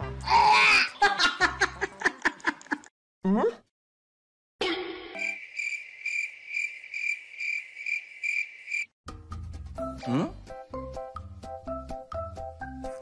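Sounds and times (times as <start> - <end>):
high cricket-like chirping: 5.2 - 8.9.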